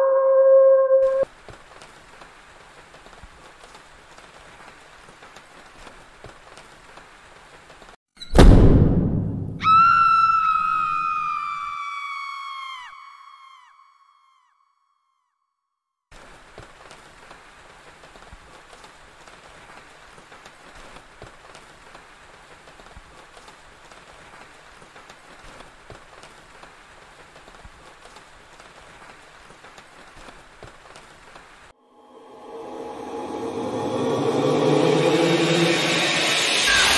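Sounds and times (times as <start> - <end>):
steady rain falling: 1.2 - 8.0, 16.1 - 31.7.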